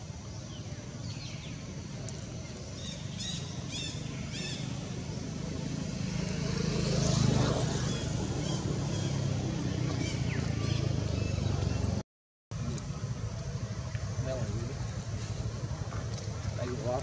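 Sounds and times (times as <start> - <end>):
passing engine hum: 1.1 - 12.0
bird chirps: 2.4 - 4.9.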